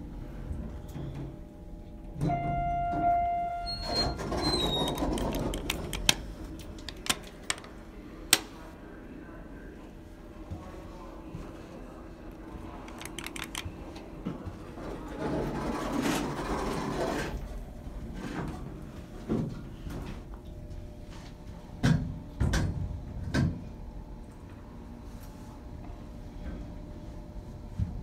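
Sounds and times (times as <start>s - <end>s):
elevator doors sliding: 2.1s - 7.7s.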